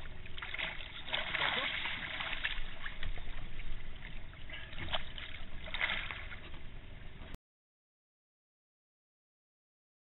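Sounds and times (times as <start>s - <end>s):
water splashing beside a boat: 0.0s - 7.4s.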